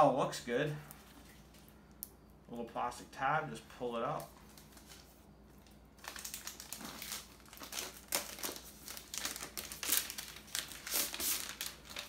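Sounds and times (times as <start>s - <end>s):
plastic wrap crinkling: 4.1s - 12.0s.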